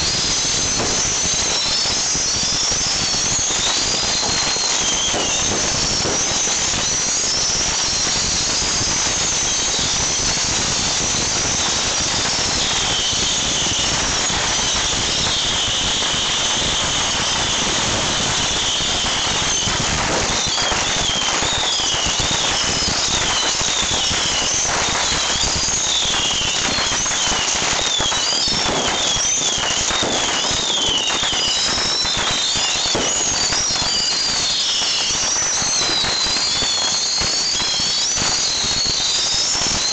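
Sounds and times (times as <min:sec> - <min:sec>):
rockets crackling and popping: 0:00.0 - 0:39.9
shrill rocket whistles: 0:00.0 - 0:39.9.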